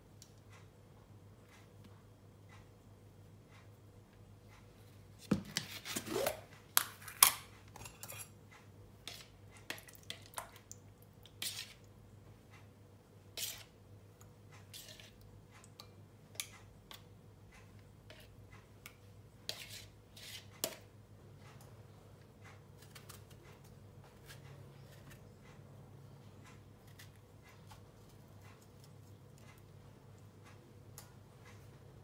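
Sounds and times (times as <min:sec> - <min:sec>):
spoon scraping plastic tub: 0:09.1 - 0:09.8, 0:11.4 - 0:11.9, 0:13.4 - 0:13.8, 0:14.6 - 0:15.2, 0:19.4 - 0:20.9.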